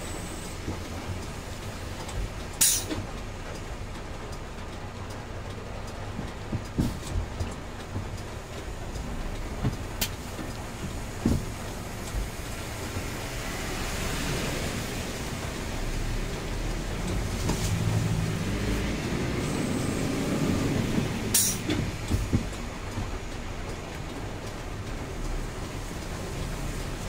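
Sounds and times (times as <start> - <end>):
diesel engine running: 0.0 - 27.0
rain: 0.0 - 27.0
road noise: 0.0 - 27.0.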